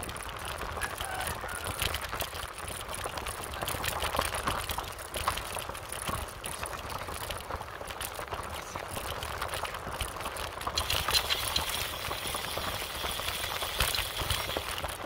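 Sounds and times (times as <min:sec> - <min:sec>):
bike rattling on paved road: 0:00.0 - 0:15.0.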